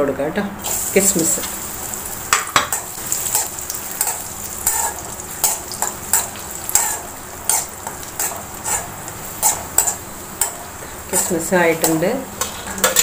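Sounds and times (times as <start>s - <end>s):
frying sizzle: 0.6s - 13.0s
spoon scraping a metal wok: 2.7s - 13.0s.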